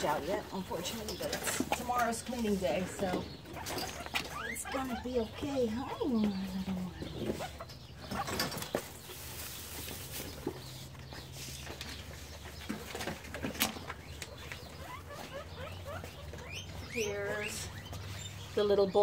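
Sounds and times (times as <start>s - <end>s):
rustling in hay bedding: 8.6s - 12.4s.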